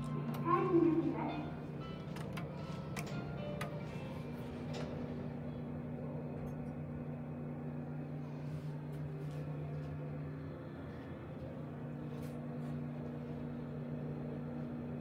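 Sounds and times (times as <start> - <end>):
elevator machinery humming: 0.0 - 15.0
elevator door clicks: 1.8 - 4.0.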